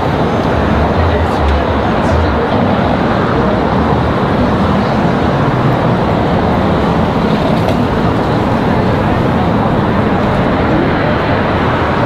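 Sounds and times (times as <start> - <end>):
cars passing: 0.0 - 12.0.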